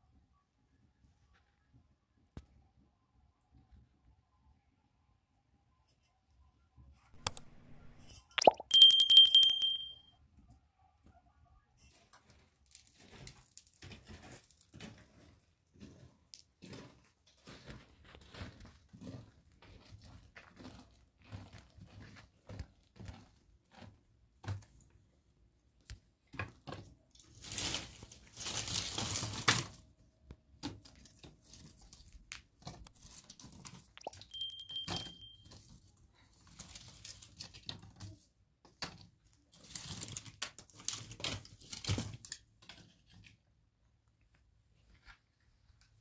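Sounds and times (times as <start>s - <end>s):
two-note chime: 8.6s - 10.0s, 34.3s - 35.4s.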